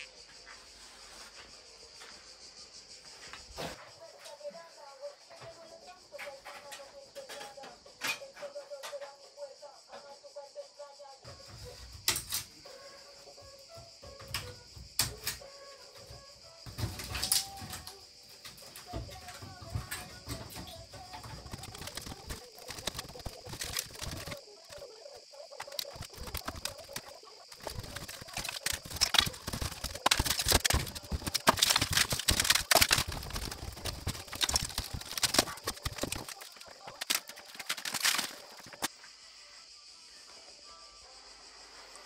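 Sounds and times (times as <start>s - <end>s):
brittle canes snapping and crackling: 12.1s - 12.6s, 15.0s - 15.4s, 16.6s - 24.8s, 25.6s - 38.9s.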